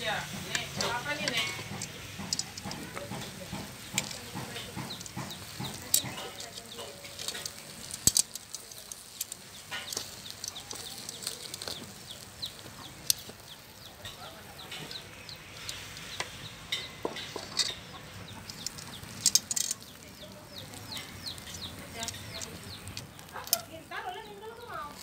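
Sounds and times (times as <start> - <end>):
chickens chirping: 0.1 - 25.0
metal tongs clicking: 0.5 - 12.2, 12.9 - 15.0, 15.6 - 23.7.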